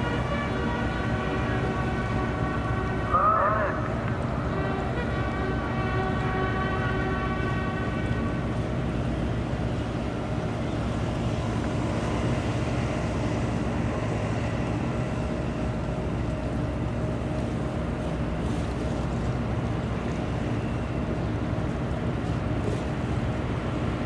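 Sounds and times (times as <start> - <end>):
bugle long note: 0.0 - 8.9
low machinery hum: 0.0 - 24.0.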